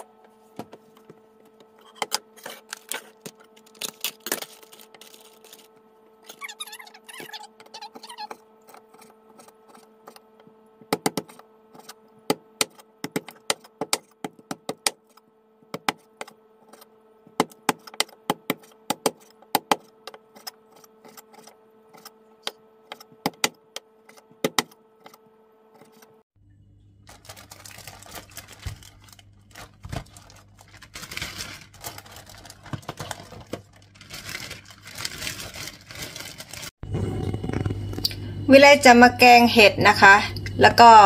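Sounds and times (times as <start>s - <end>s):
faint steady hum: 0.0s - 41.0s.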